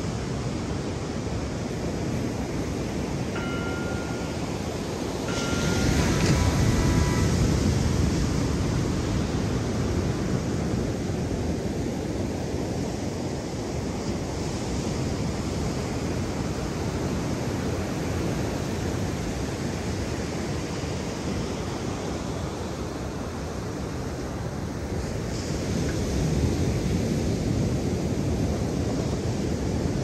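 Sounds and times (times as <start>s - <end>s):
wind buffeting microphone: 0.0s - 20.5s
ocean surf rushing: 0.0s - 30.0s.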